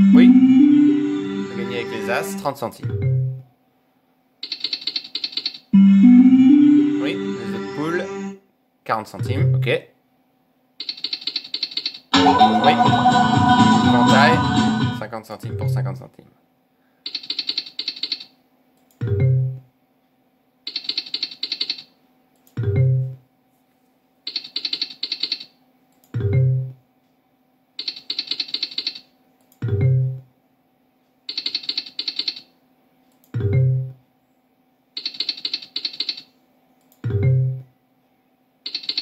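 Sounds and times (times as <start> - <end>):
slot reels clicking: 35.0 - 36.3, 38.7 - 39.0.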